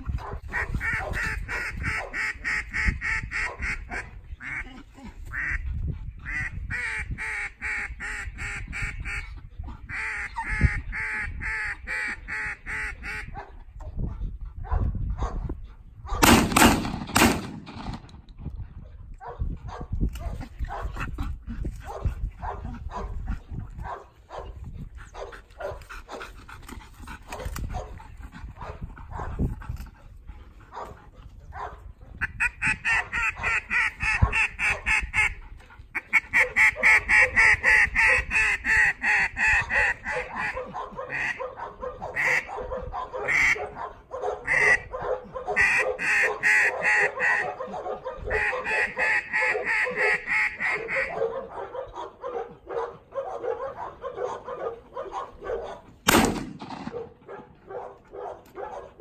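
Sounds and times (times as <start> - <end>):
dog barking: 0.2 - 2.2, 3.4 - 4.1, 13.3 - 13.6, 14.6 - 15.5, 19.2 - 20.9, 21.9 - 23.2, 23.8 - 26.2, 27.3 - 28.0, 28.6 - 29.4, 30.7 - 31.8, 33.0 - 33.5, 34.2 - 34.9, 36.4 - 38.3, 39.6 - 55.9, 56.9 - 59.0.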